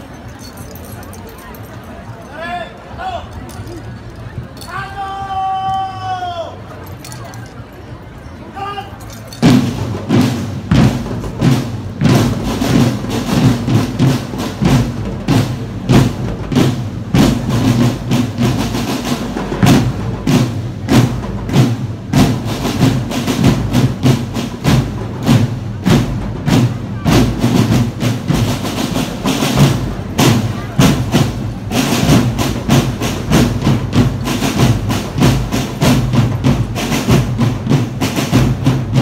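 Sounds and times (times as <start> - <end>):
marching band tune: 8.4 - 39.0
drums striking steady beat: 9.3 - 39.0.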